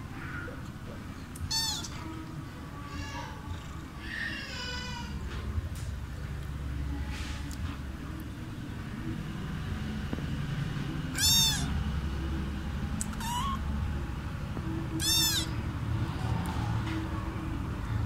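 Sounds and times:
kitten meowing: 1.4 - 2.1, 11.1 - 11.7, 13.0 - 13.6, 15.0 - 15.6.

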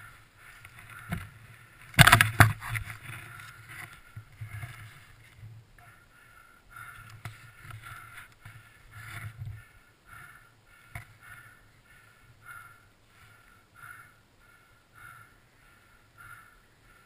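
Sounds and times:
crunching of deep snow and branches: 0.0 - 5.8.

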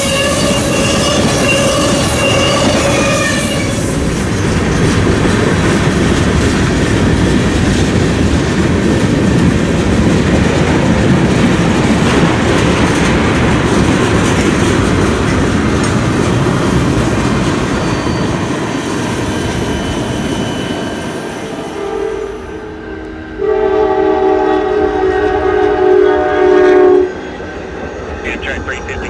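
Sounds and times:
train wheels rumbling on rail: 0.0 - 21.6.

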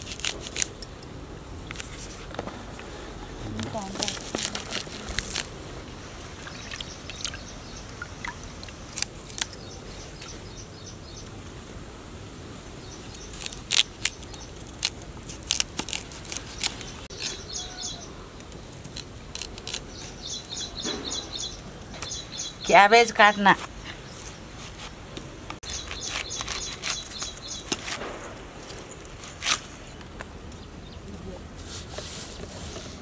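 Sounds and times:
birds chirping: 6.0 - 11.3, 16.4 - 18.3, 19.6 - 24.5, 25.6 - 27.8.

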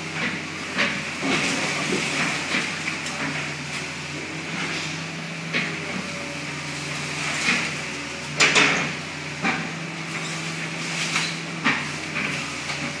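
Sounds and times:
excavator diesel engine humming: 0.0 - 13.0.

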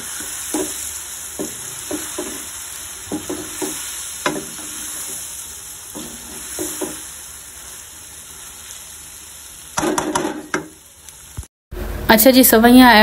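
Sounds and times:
wooden spatula scraping a pan: 0.0 - 7.7
noodles sizzling in a pan: 0.0 - 11.5.

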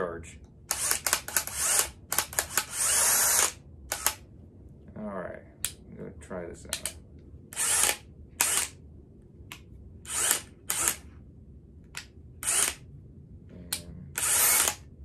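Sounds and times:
cordless drill motor whir: 0.7 - 4.2, 7.5 - 8.8, 10.0 - 11.0, 12.4 - 12.8, 14.2 - 14.9.

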